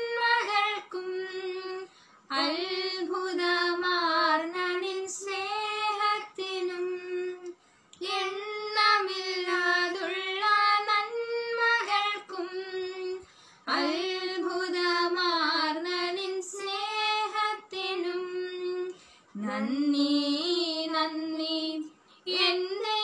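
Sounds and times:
women singing together: 0.0 - 23.0
singer breaths: 13.2 - 13.7.

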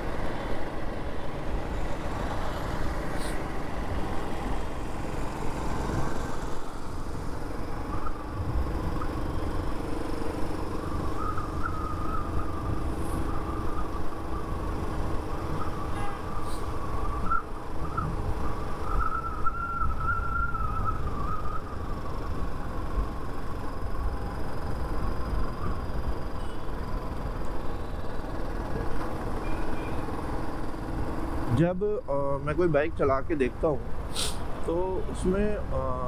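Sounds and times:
motorcycle engine drone: 0.0 - 36.0
faint wavering whistle: 7.7 - 8.4, 10.8 - 14.8, 15.5 - 22.0.

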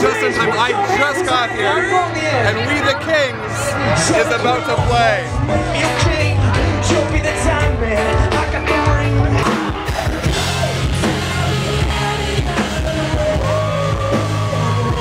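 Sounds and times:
rock band playing live: 0.0 - 15.0.

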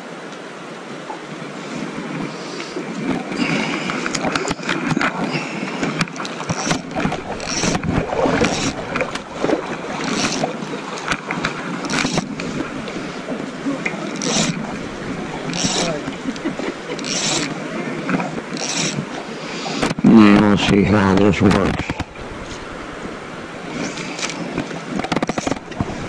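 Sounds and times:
river water sloshing and splashing: 0.0 - 26.0
wind noise: 1.7 - 26.0
fishing rod scrapes and clicks: 2.0 - 13.3, 13.9 - 20.0, 23.7 - 26.0.

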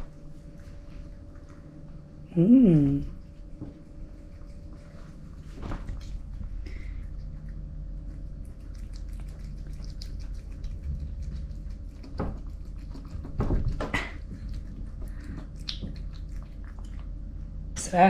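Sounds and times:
steady low hum: 0.0 - 18.0
cat eating wet food: 3.2 - 17.5.

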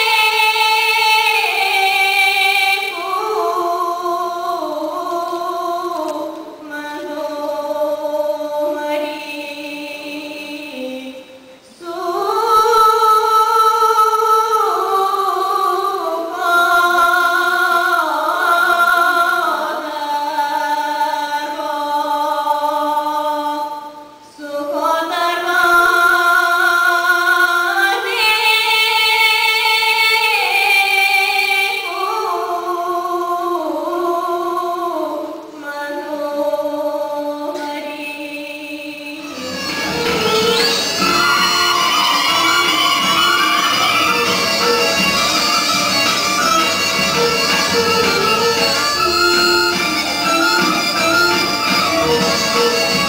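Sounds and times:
woman singing folk song: 0.0 - 45.0.

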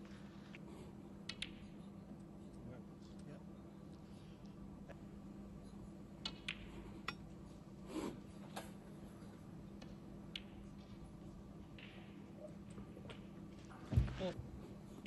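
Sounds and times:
low steady hum: 0.0 - 15.0
snooker balls clicking: 1.2 - 2.4, 5.7 - 7.4, 8.5 - 13.8.

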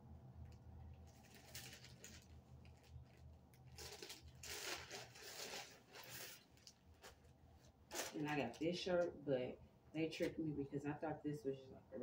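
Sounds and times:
plastic bag crinkling: 0.9 - 8.8.

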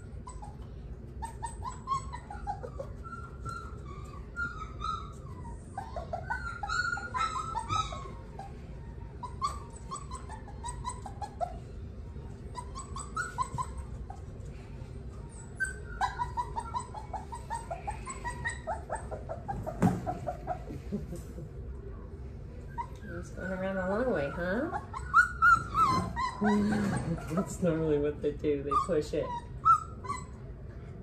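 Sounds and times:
puppy whining and whimpering: 0.0 - 21.6, 22.6 - 27.9, 28.5 - 30.9.

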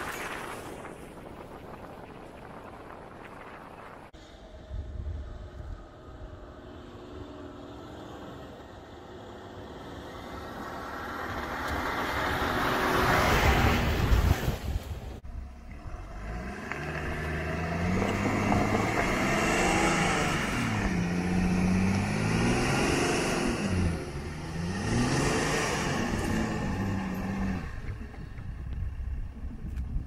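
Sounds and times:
engine revving: 15.3 - 28.2.

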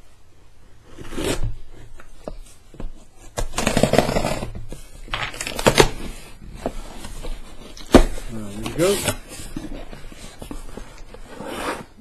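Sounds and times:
cardboard box scraping: 3.0 - 12.0
packing tape ripping: 5.2 - 6.1.

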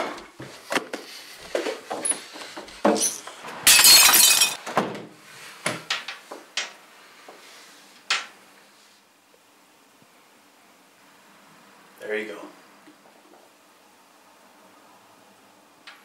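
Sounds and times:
glass pieces clinking: 2.9 - 4.6
glass shattering: 2.9 - 4.6.

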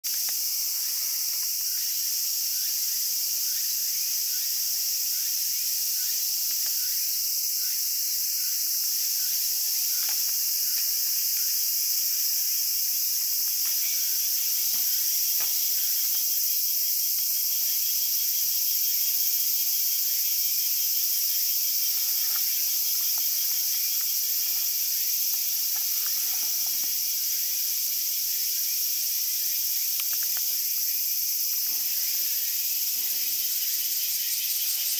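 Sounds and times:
cicadas chorus: 0.0 - 34.9
faint clicks: 29.9 - 30.6.

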